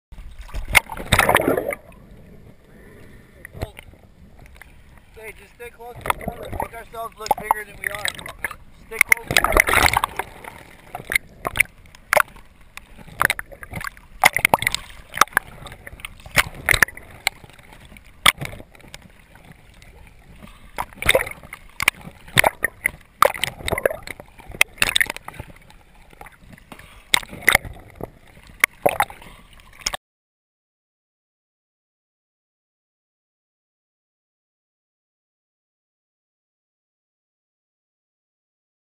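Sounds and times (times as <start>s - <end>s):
water sloshing and gurgling: 0.1s - 30.0s
water splashing: 0.1s - 30.0s.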